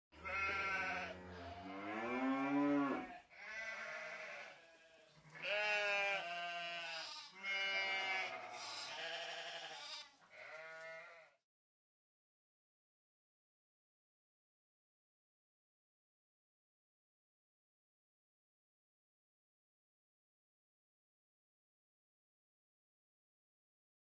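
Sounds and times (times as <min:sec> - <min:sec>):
sheep bleating: 0:00.2 - 0:11.4.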